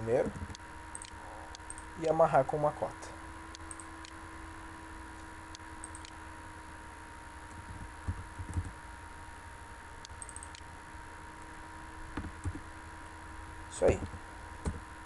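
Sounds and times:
faint steady hum: 0:00.0 - 0:15.0
mouse and keyboard clicks: 0:00.3 - 0:01.9, 0:05.8 - 0:06.2, 0:10.0 - 0:10.7.

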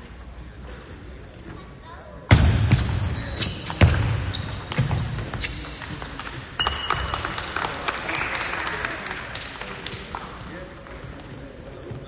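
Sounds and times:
shoes squeaking on floor: 0:02.7 - 0:07.3.

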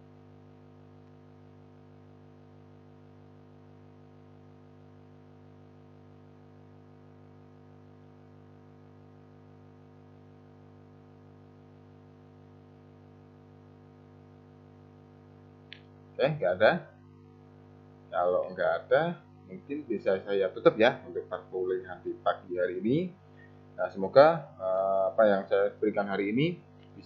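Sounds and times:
electrical mains hum: 0:00.0 - 0:27.0.

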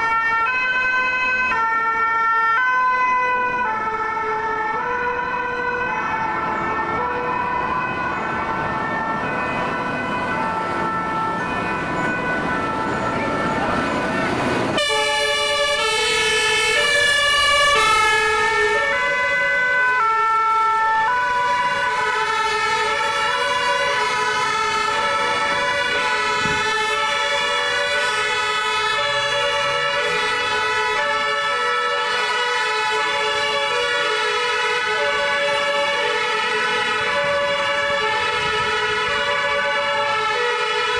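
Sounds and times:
two-tone emergency sirens: 0:00.0 - 0:40.9.

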